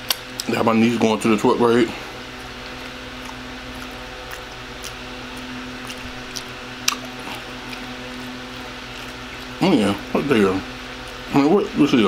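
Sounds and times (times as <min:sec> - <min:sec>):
low electrical hum: 0:00.0 - 0:12.0
mouth chewing: 0:02.3 - 0:10.2.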